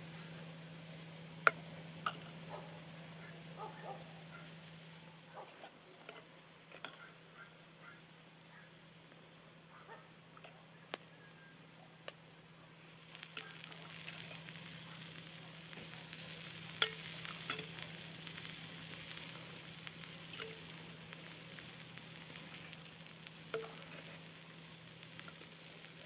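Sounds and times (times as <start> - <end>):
food sizzling in a frying pan: 0.0 - 5.0, 12.8 - 26.0.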